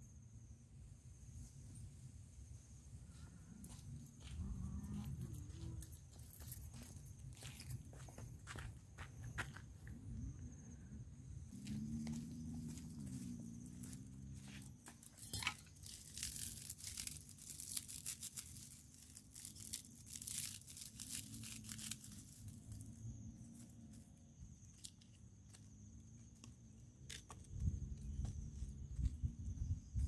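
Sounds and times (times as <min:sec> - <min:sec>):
twigs crackling and snapping: 0:15.3 - 0:22.8, 0:26.4 - 0:27.7.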